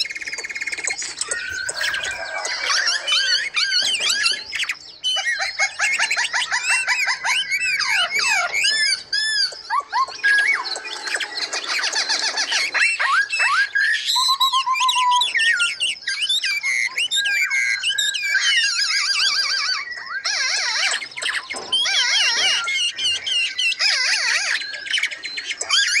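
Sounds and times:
songbirds singing: 0.0s - 26.0s.

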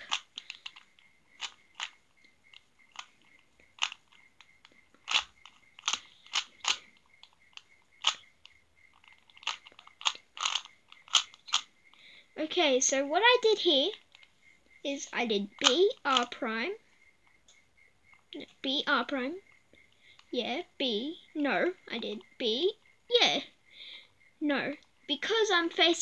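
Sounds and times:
puzzle cube clicking as turned: 0.0s - 8.3s, 8.9s - 11.7s, 15.6s - 16.3s.

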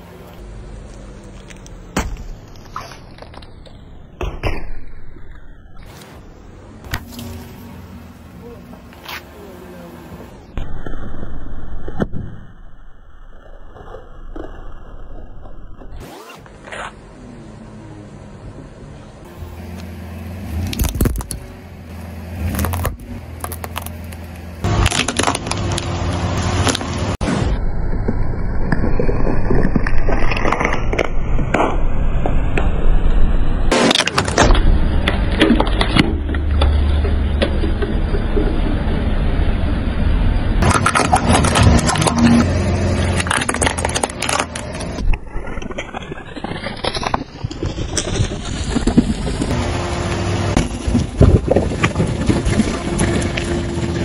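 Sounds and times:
low car rumble: 0.0s - 54.0s
tyre crunching small objects: 0.8s - 3.9s, 20.5s - 27.2s, 28.0s - 31.2s, 33.7s - 38.6s, 40.6s - 49.6s
plastic crushing under a tyre: 22.5s - 25.9s, 40.6s - 49.6s.

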